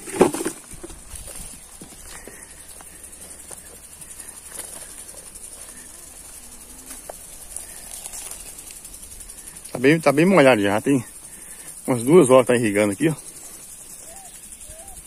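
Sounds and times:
faint rustles and knocks: 0.0s - 9.6s
insects chirring: 0.0s - 15.0s.

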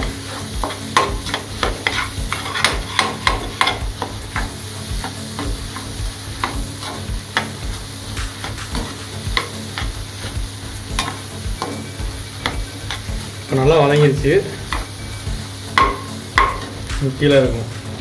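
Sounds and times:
metal spatula scraping a pan: 0.0s - 13.4s
frying sizzle: 0.0s - 18.0s.

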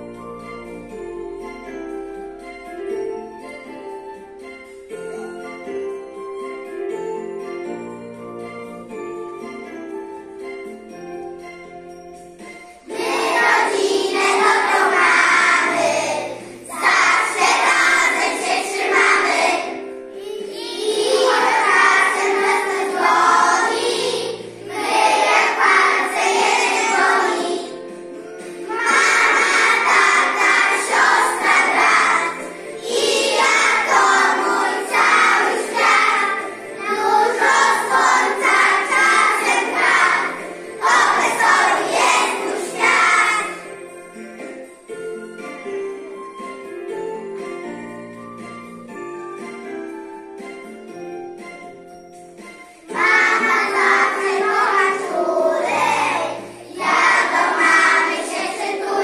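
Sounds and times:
recorded musical accompaniment: 0.0s - 59.0s
children singing together: 12.8s - 43.8s, 52.9s - 59.0s.

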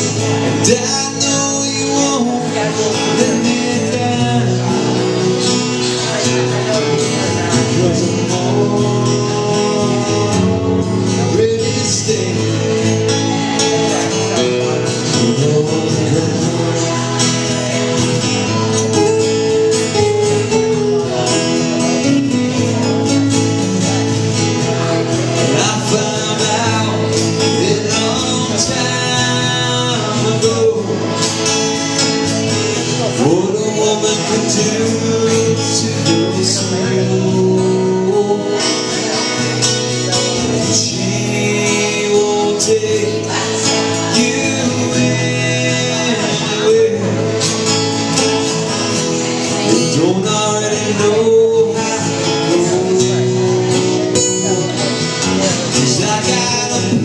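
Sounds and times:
acoustic guitars strummed: 0.0s - 57.0s
man singing: 0.0s - 57.0s.

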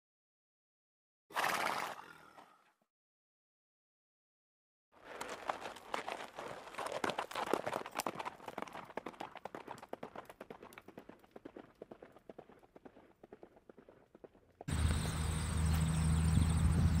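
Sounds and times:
horse hoofbeats: 5.0s - 17.0s.

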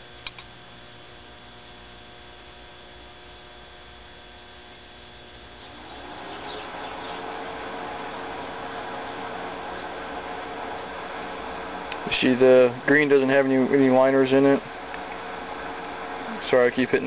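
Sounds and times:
electrical mains hum: 0.0s - 17.0s
click: 0.2s - 0.5s
rushing noise with rising tone: 5.7s - 12.2s.

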